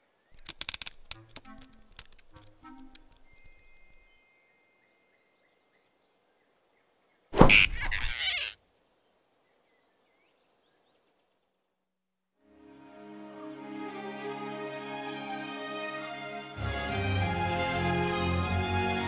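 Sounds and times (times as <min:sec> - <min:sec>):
faint soundtrack ambience: 0:00.4 - 0:06.6, 0:12.4 - 0:19.0.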